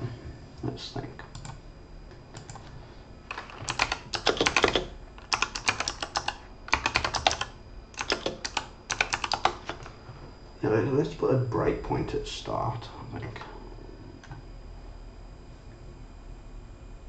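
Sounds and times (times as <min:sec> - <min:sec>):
computer keyboard typing: 0:01.3 - 0:01.6, 0:02.4 - 0:02.7, 0:03.3 - 0:09.9.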